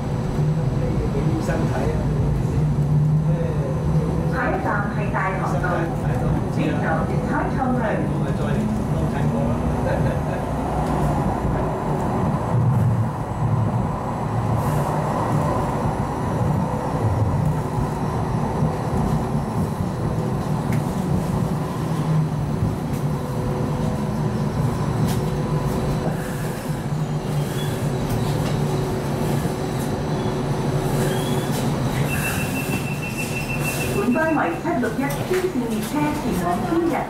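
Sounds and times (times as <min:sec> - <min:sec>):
tram motors and wheels humming: 0:00.0 - 0:37.0.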